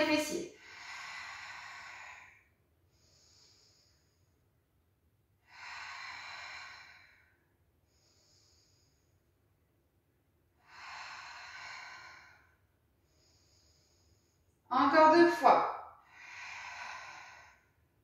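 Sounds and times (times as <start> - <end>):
woman inhaling: 10.6 - 14.6, 16.0 - 17.9.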